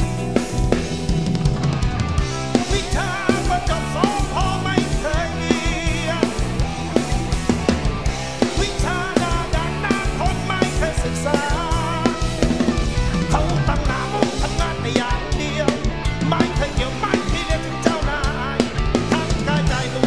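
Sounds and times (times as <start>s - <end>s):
bass guitar: 0.0s - 20.0s
drum kit beat: 0.0s - 20.0s
electric guitar: 0.0s - 20.0s
man singing with vibrato: 2.5s - 6.6s, 8.4s - 12.5s, 13.1s - 20.0s.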